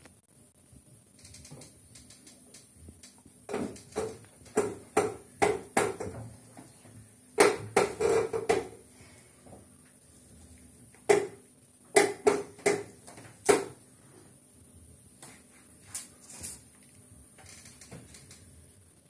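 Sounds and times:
wooden easel knocking and creaking: 3.5 - 6.8, 7.4 - 8.8, 11.1 - 11.4, 12.0 - 13.8.

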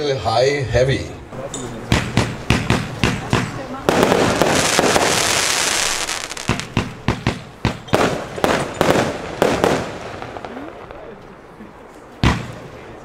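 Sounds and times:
firework battery bangs: 1.8 - 11.1, 12.2 - 12.7.

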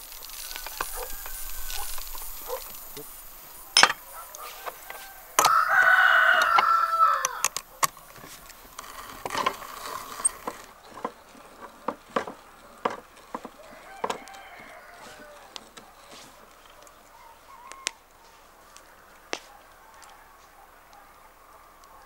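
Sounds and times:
rooster crowing: 0.3 - 7.6, 13.4 - 15.6, 19.8 - 20.6
sharp knocks and clicks: 3.8 - 4.8, 10.4 - 14.3.

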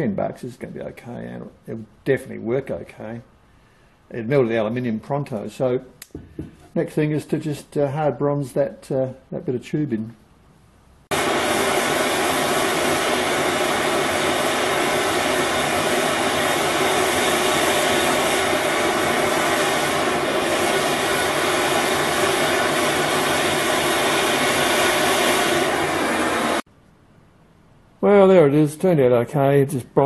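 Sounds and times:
gas torch flame hissing: 11.1 - 26.7.

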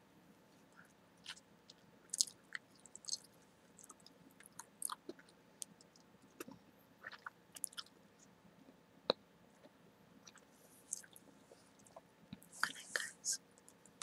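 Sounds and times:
gum chewing: 1.2 - 7.9, 9.1 - 12.5.

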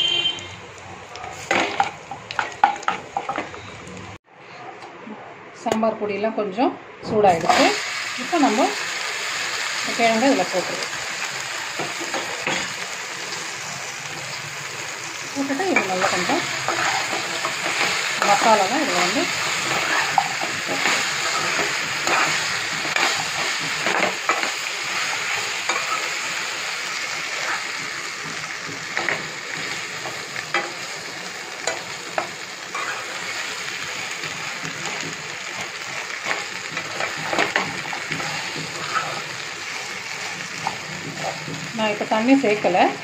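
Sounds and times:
food sizzling in hot oil: 0.0 - 4.2, 7.3 - 43.0
spatula scraping a pan: 15.8 - 26.2, 31.7 - 33.5, 36.2 - 39.4.

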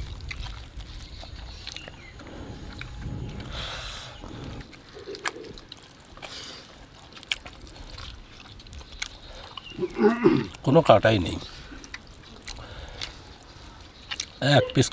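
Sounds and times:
low rumble: 0.0 - 5.3
mouth clicks: 0.0 - 14.9
person chewing with lip smacks: 0.0 - 14.9.

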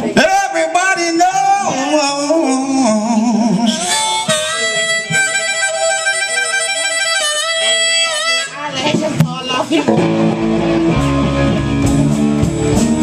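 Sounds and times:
live band music: 0.0 - 13.0
reedy lead instrument: 2.0 - 8.8, 9.9 - 13.0.

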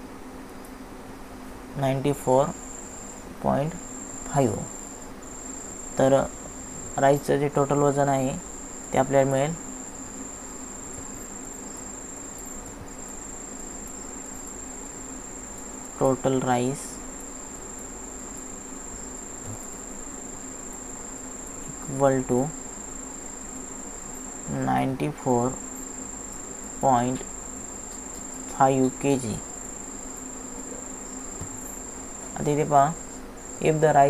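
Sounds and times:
high-pitched whine: 1.8 - 17.0, 17.8 - 27.7.

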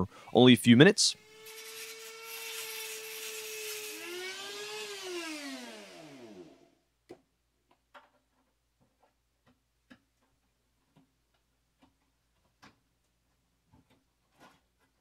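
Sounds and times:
rotary tool winding down: 1.2 - 6.7.

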